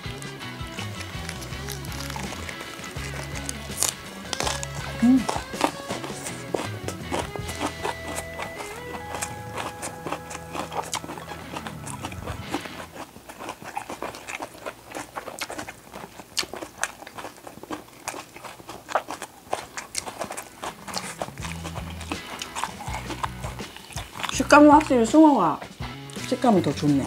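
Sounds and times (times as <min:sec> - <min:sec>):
light background music: 0:00.0 - 0:13.0, 0:20.7 - 0:27.0
chewing mouth clicks: 0:00.0 - 0:26.4.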